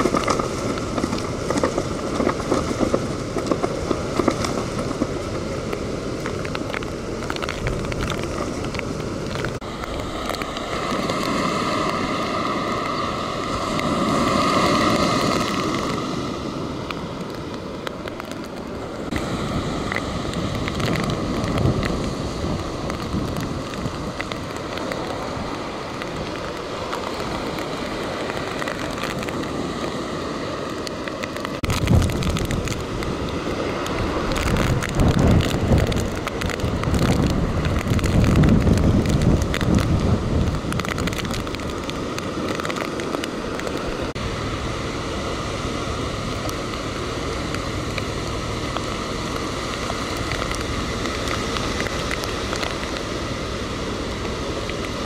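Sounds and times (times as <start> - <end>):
flag flapping in wind: 0.0 - 16.1, 30.9 - 44.2
heavy rain: 0.0 - 55.0
strong wind buffeting microphone: 0.0 - 55.0
waves breaking on beach: 0.0 - 55.0.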